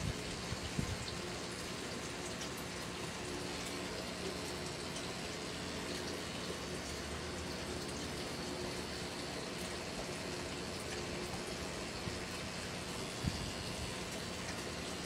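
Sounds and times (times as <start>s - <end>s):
tattoo machine humming: 5.8s - 15.0s.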